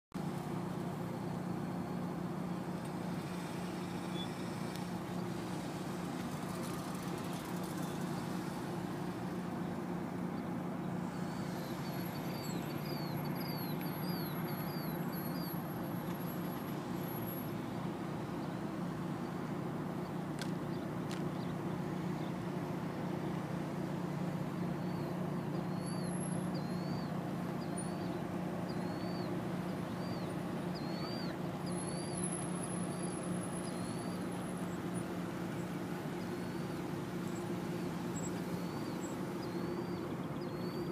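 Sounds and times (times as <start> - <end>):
bird chirping: 11.1 - 15.6, 24.8 - 32.2, 32.8 - 34.8, 35.6 - 40.9.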